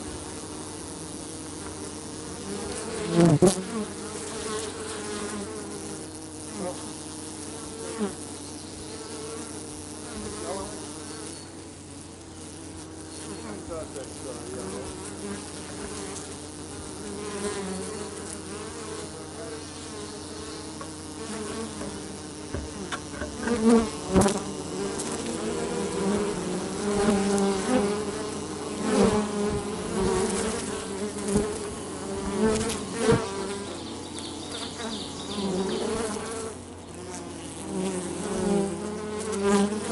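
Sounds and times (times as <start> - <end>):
bee droning past: 0.0 - 39.9
bees buzzing: 0.0 - 39.9
sharp knocks: 21.8 - 23.6.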